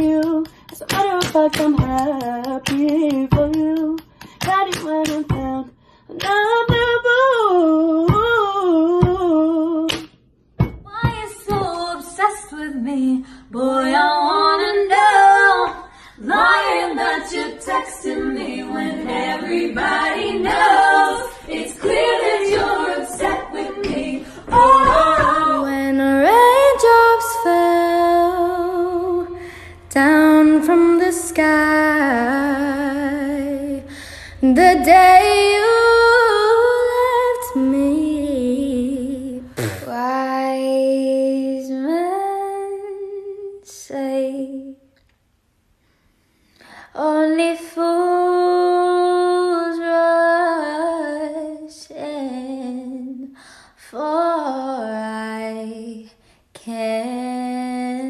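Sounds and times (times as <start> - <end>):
woman singing unaccompanied: 0.0 - 10.0, 10.8 - 44.8.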